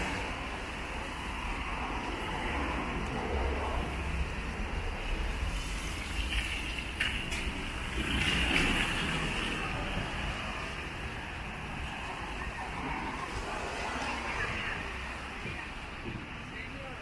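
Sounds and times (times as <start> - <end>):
tyres hissing on wet asphalt: 4.8 - 12.4.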